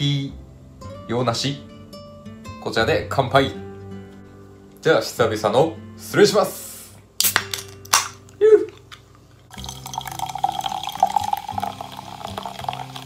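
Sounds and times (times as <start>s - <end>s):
can ring-pull snapping open: 7.2s - 9.0s
drink pouring and fizzing: 9.5s - 13.0s.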